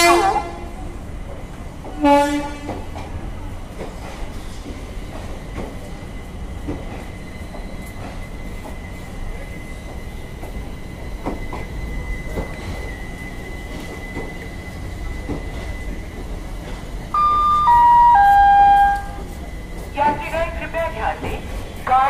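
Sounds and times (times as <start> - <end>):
train horn toot: 0.0 - 0.8, 2.0 - 2.8, 17.2 - 19.3
train coaches rumbling: 0.0 - 22.0.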